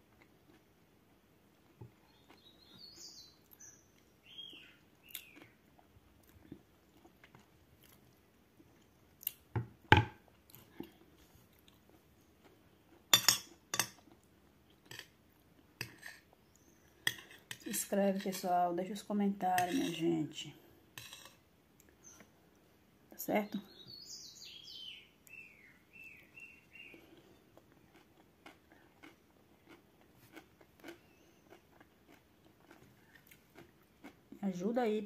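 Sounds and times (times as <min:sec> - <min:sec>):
person chewing: 0:00.0 - 0:00.8, 0:01.5 - 0:02.8, 0:03.4 - 0:09.5, 0:10.3 - 0:17.7, 0:26.7 - 0:34.4
bird chirping: 0:02.0 - 0:05.6, 0:22.0 - 0:22.3, 0:23.3 - 0:27.4, 0:31.0 - 0:31.6.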